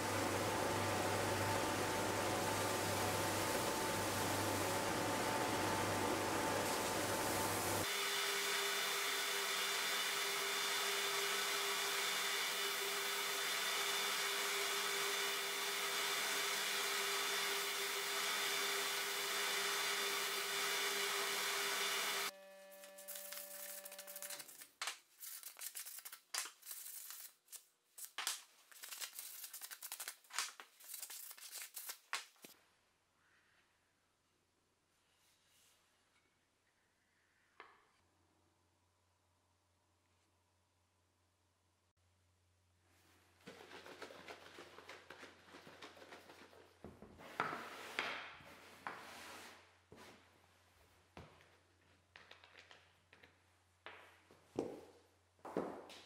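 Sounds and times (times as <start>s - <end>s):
belt sander sanding wood: 1.9s - 22.3s.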